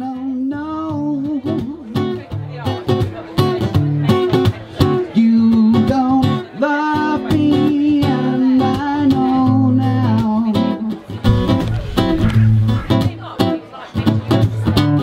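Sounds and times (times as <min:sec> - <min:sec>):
acoustic guitar strumming: 0:09.7 - 0:13.5.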